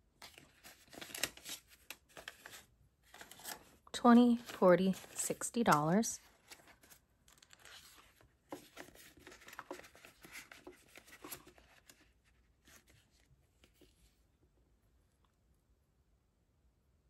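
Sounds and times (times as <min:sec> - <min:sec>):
plastic envelope crinkling: 0:00.2 - 0:13.1
paper banknotes rustling: 0:00.2 - 0:14.1.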